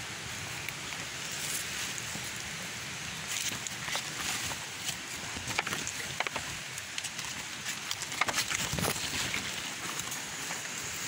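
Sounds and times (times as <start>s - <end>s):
steady hiss: 0.0s - 11.0s
dry leaves crunching underfoot: 0.9s - 11.0s
twigs snapping: 3.3s - 10.2s.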